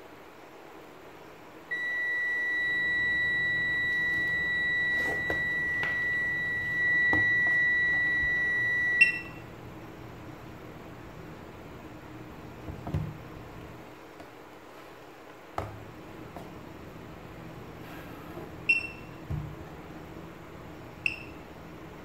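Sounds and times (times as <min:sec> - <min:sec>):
high-pitched multimeter beep: 0:01.7 - 0:09.4, 0:18.7 - 0:19.1, 0:21.0 - 0:21.4.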